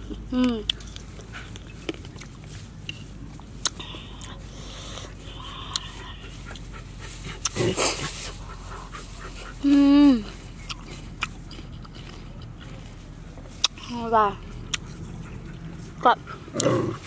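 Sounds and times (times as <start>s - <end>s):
loud breathy rush: 3.8s - 9.6s.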